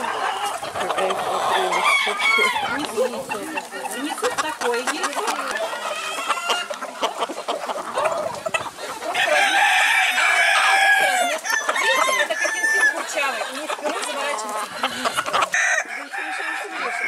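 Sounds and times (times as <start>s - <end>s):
chickens clucking: 0.0s - 17.0s
rooster crowing: 1.4s - 2.8s, 9.2s - 13.1s, 14.9s - 17.0s.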